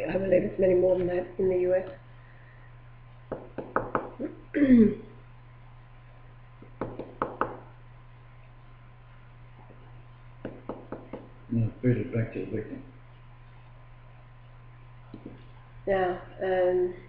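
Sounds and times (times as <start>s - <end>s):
low electrical hum: 0.0s - 17.0s
person clearing throat: 4.6s - 5.0s.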